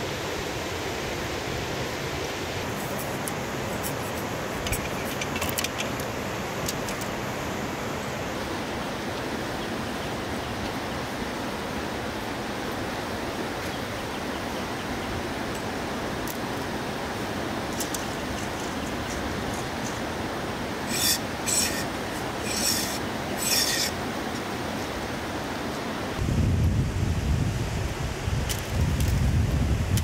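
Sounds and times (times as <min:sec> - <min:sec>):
river water rushing: 0:00.0 - 0:26.2
knife shaving bamboo: 0:20.8 - 0:24.0.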